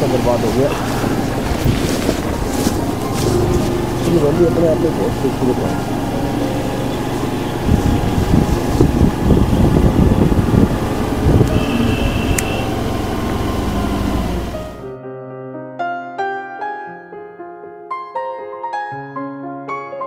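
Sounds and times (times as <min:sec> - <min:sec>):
wind noise: 0:00.0 - 0:04.5, 0:05.8 - 0:14.7
road rumble: 0:00.0 - 0:14.9
vehicle engine running: 0:00.0 - 0:14.9.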